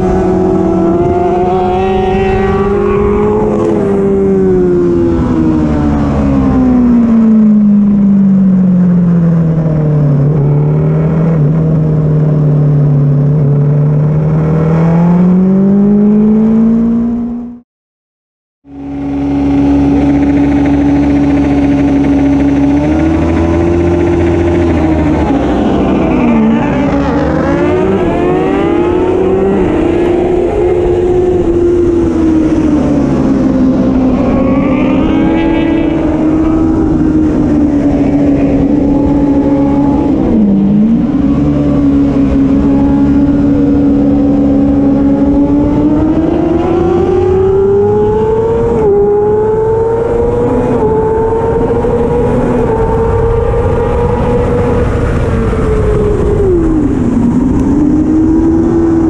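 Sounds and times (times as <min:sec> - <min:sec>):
racing motorcycle engine: 0:00.0 - 0:17.6, 0:18.6 - 0:59.0.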